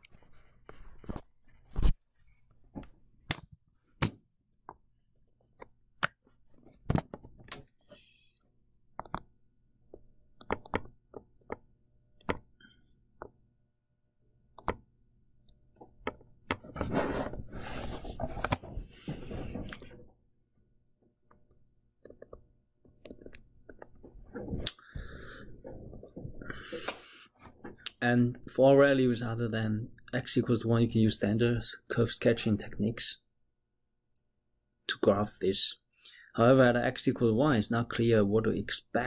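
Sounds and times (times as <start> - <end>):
stylus scratching on tablet: 16.8 - 19.6.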